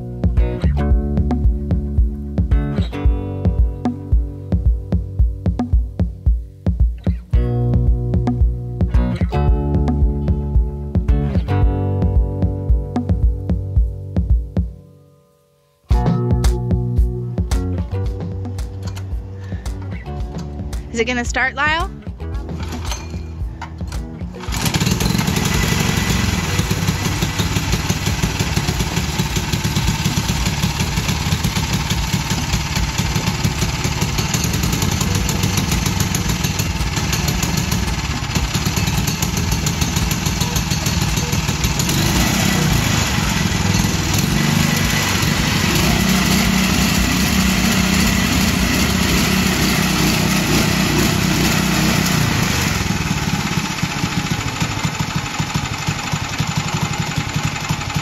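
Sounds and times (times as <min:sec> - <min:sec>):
small engine running: 0:24.3 - 0:58.0.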